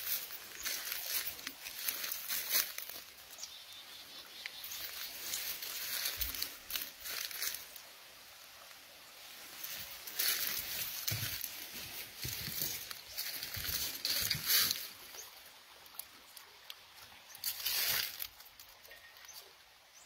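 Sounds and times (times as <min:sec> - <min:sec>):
footsteps through dry leaves: 0:00.0 - 0:03.5, 0:04.4 - 0:07.9, 0:09.3 - 0:15.3, 0:17.4 - 0:18.4.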